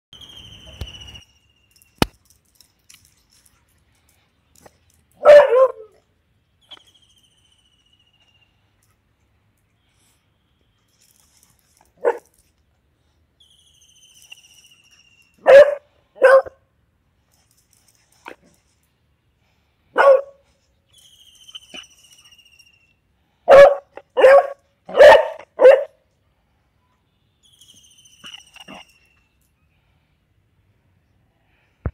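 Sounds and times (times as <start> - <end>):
dog barking: 5.2 - 5.9, 15.4 - 16.6, 19.9 - 20.4, 23.5 - 26.0.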